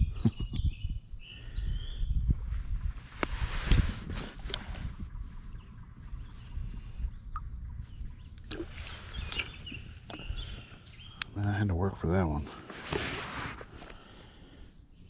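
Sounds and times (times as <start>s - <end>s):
insects droning: 0.0s - 15.0s
water splashing: 6.1s - 10.8s.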